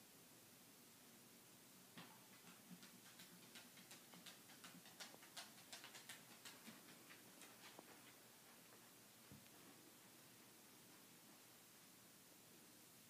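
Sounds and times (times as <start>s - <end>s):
dog claws clicking on hardwood floor: 2.0s - 8.0s.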